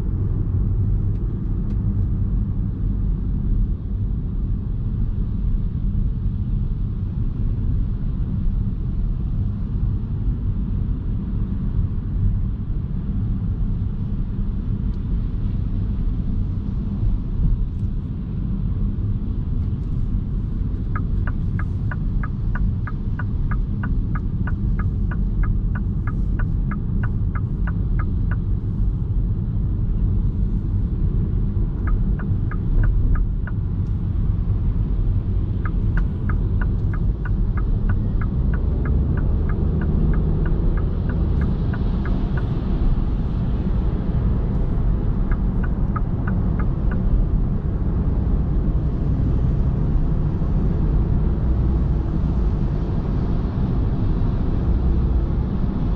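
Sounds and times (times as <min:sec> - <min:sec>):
road and tyre rumble in car: 0:00.0 - 0:55.9
turn signal ticking: 0:19.8 - 0:29.2, 0:30.2 - 0:49.5.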